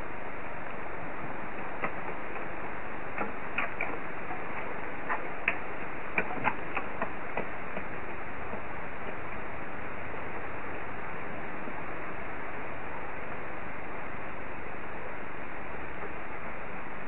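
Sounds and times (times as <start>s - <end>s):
pouring rain hiss: 0.0s - 17.0s
raindrops ticking close by: 0.5s - 13.6s.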